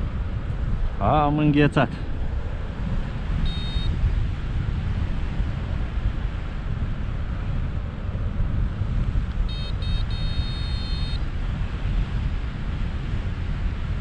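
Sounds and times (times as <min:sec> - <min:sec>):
wind rushing over microphone: 0:00.0 - 0:14.0
electronic beeps and tone: 0:03.5 - 0:03.9, 0:09.5 - 0:11.2.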